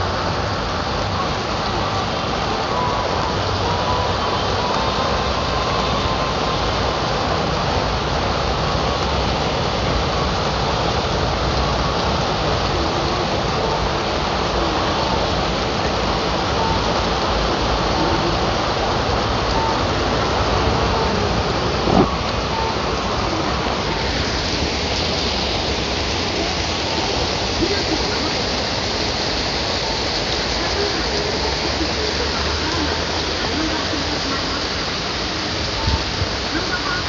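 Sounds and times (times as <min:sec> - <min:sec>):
heavy rain pouring: 0:00.0 - 0:37.0
faint short beeps: 0:21.8 - 0:22.8.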